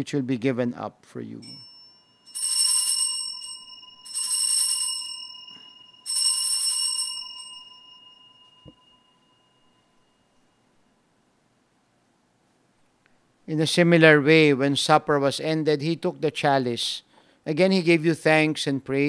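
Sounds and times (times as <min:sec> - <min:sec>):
altar bells ringing: 0:01.4 - 0:10.8.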